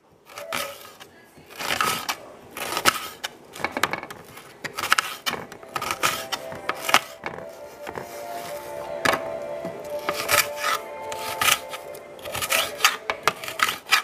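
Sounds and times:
knife slicing onion: 0.3 - 6.2.

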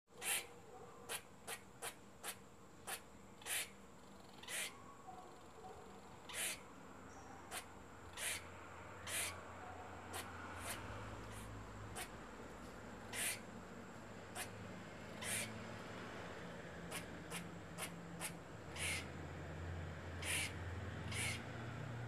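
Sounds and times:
squirrel chucking calls: 0.1 - 4.8, 6.2 - 6.7, 7.4 - 12.2, 13.1 - 13.5, 14.3 - 15.6, 16.8 - 19.2, 20.2 - 21.5.

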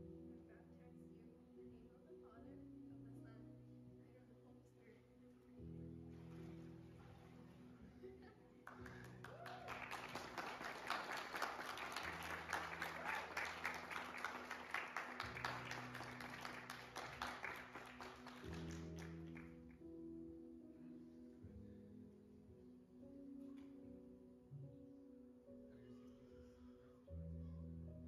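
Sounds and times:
soft background music: 0.0 - 28.0
small group clapping: 8.6 - 19.8.

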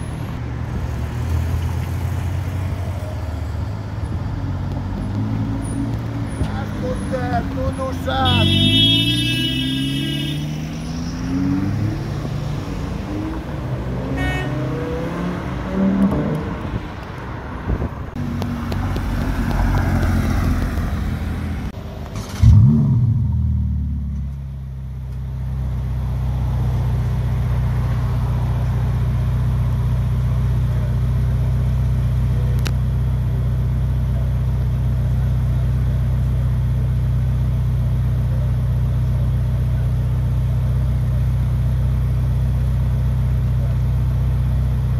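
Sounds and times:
car engine revving and idling: 0.0 - 44.9
sports car accelerating: 0.8 - 24.3.

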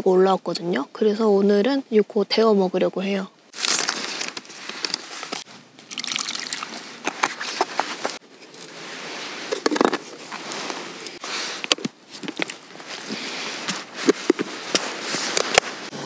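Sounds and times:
plastic container handling: 3.6 - 15.9
water pouring: 5.8 - 7.3.

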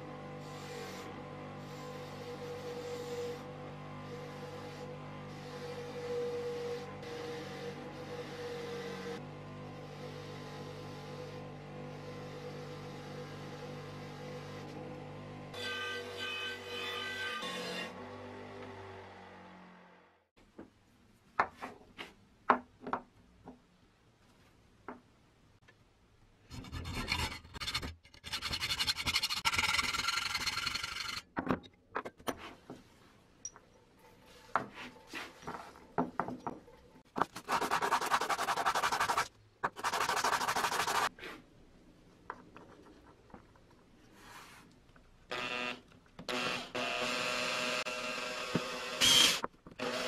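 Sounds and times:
cordless drill boring metal: 45.3 - 50.0.

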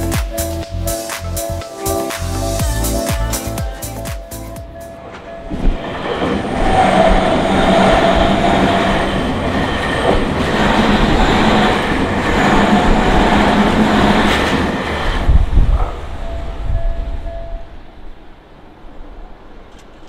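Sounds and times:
level crossing warning bell: 0.0 - 6.7, 16.2 - 18.0
train wheels rumbling on rails: 4.7 - 18.0
wheels clacking over rail joints: 19.6 - 20.0.

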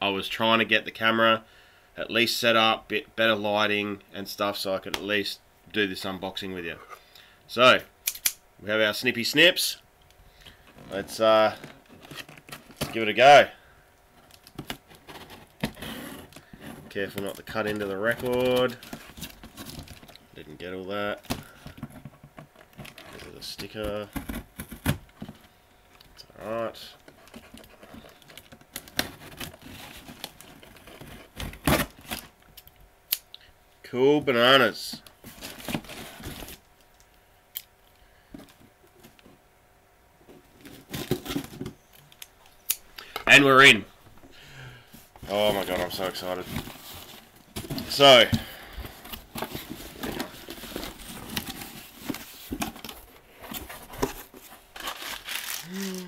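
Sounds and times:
tape tearing and handling noise: 45.3 - 56.0
packing tape peeling off cardboard: 54.8 - 56.0.

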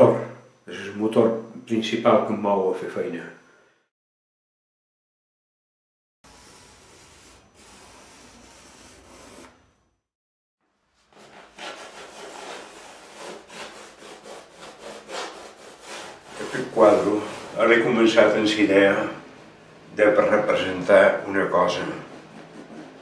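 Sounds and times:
pastel scratching on canvas: 6.3 - 9.6, 11.0 - 17.9, 21.6 - 23.0.

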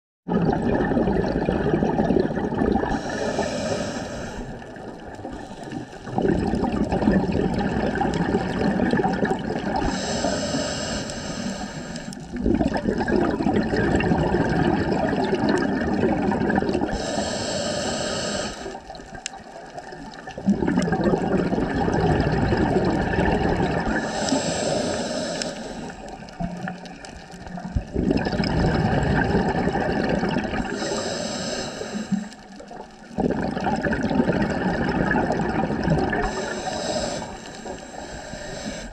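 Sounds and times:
exhaled bubbles rushing: 0.3 - 10.2, 12.0 - 17.2, 18.6 - 25.0, 25.7 - 31.0, 32.1 - 38.9
regulator inhale hiss: 2.9 - 4.6, 5.3 - 6.1, 9.8 - 12.3, 16.9 - 18.9, 24.0 - 26.4, 30.7 - 32.7, 36.2 - 38.9.

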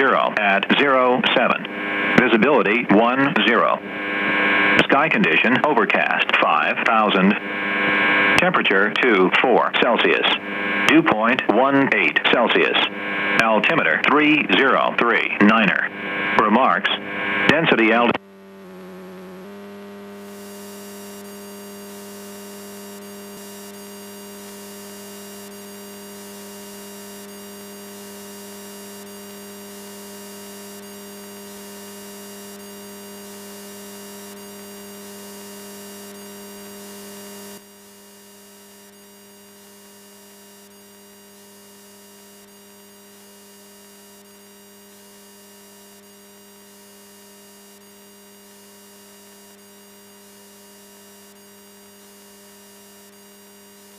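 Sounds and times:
high whine: 0.0 - 37.7
electrical hum: 0.0 - 53.9.

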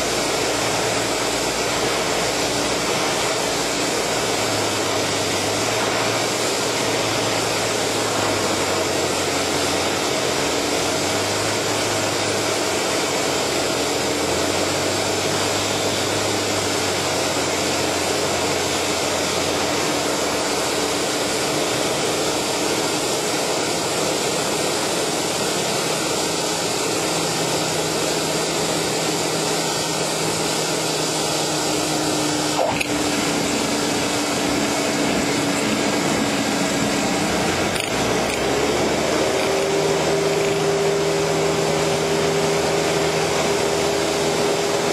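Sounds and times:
propeller plane engine drone: 0.0 - 44.9.

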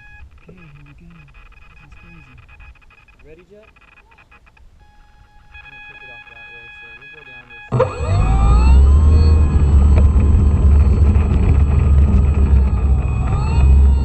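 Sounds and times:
electric motor and propeller whine: 7.7 - 14.0
heavy low rumble: 7.7 - 14.0.

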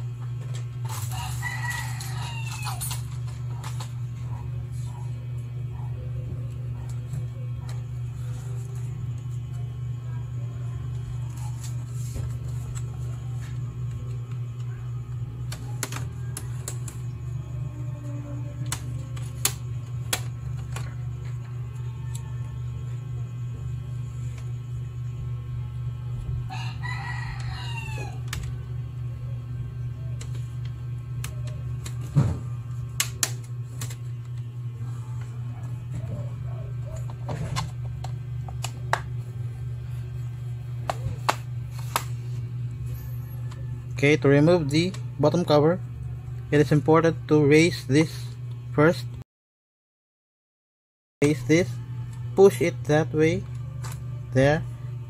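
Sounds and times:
steady low hum: 0.0 - 49.2, 51.2 - 55.0
rooster crowing: 0.9 - 3.6, 26.2 - 28.6.

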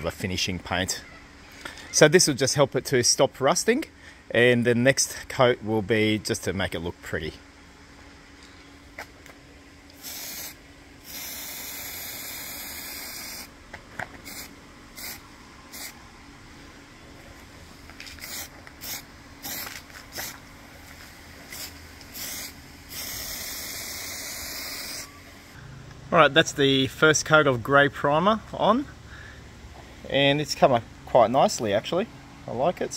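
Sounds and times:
aerosol spray can hissing: 10.0 - 13.5, 14.2 - 16.0, 18.0 - 20.4, 21.5 - 25.1.

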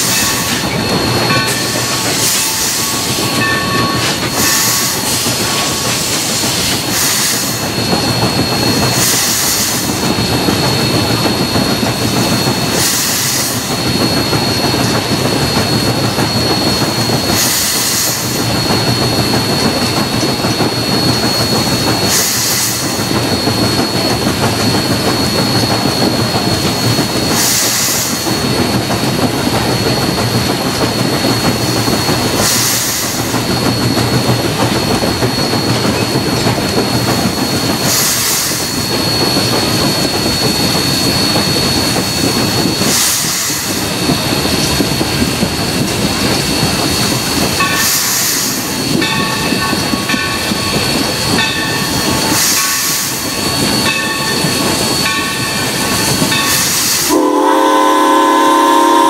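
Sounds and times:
thin high steam hiss: 0.0 - 11.1, 12.3 - 14.8, 16.4 - 19.6, 20.2 - 24.0, 24.7 - 28.7, 31.3 - 34.0, 49.7 - 57.2
steam locomotive wheels clattering: 0.0 - 59.0
bursts of steam hiss: 12.3 - 14.2, 27.2 - 28.6.

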